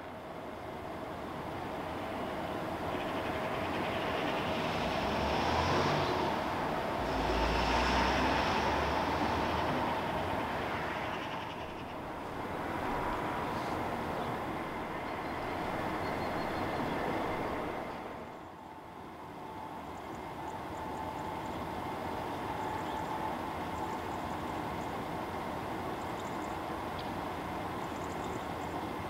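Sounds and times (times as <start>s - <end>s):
faint train whine: 0.0s - 29.0s
train wheels rolling on rail: 0.6s - 18.8s.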